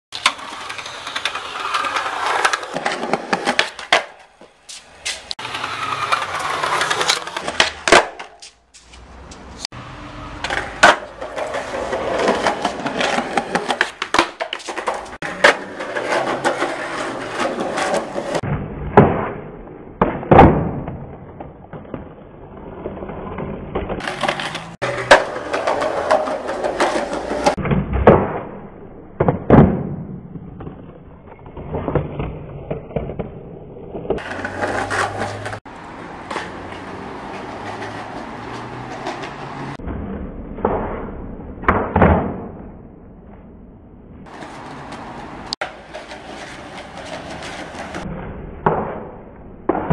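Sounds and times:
skateboard clacking on ground: 0.1 - 9.7, 10.3 - 18.4, 24.0 - 27.6, 34.1 - 39.8, 44.2 - 49.9
skateboard rolling on paving: 0.1 - 18.4, 21.3 - 27.6, 30.6 - 39.8, 44.2 - 48.8.

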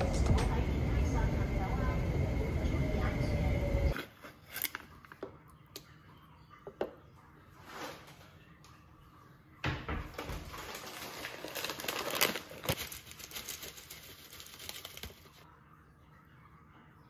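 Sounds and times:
bag crinkling and rustling: 10.2 - 15.4.

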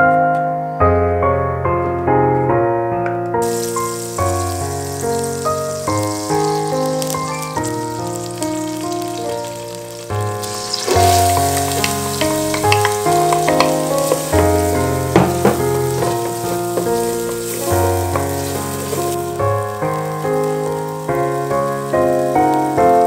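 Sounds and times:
keyboard background music: 0.0 - 23.0
onion sizzling in a pot: 3.4 - 23.0
wooden spoon clicking on pan: 11.2 - 14.6.

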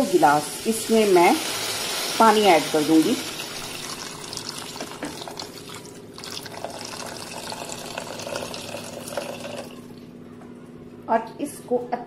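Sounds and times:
faint steady hum: 0.0 - 12.0
water pouring into a pot: 0.7 - 10.0.

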